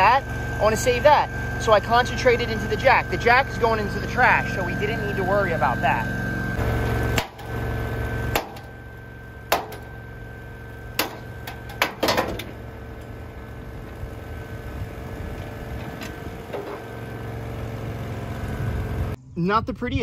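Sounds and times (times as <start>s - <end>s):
welding machine engine running: 0.0s - 19.2s
sharp knocks: 8.3s - 8.7s, 9.5s - 9.9s, 11.0s - 12.6s.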